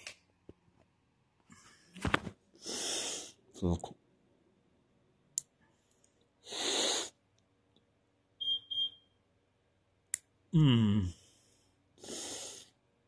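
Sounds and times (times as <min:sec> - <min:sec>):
breathy hiss: 0:02.6 - 0:03.4, 0:06.4 - 0:07.2, 0:11.2 - 0:12.8
high-pitched electronic beeps: 0:08.4 - 0:09.1.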